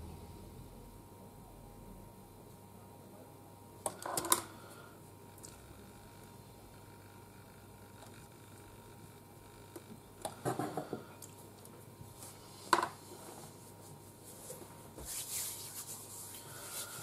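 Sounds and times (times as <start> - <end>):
soft rustle: 12.1 - 17.0.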